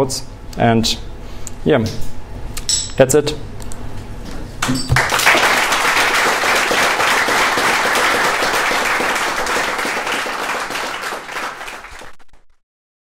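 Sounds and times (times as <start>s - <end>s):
audience applauding: 4.9s - 12.4s.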